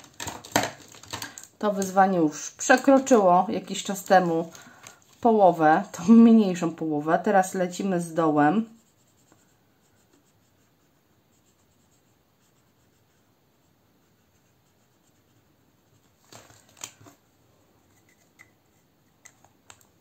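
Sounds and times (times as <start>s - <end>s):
marker scratching on plastic: 7.8s - 16.1s.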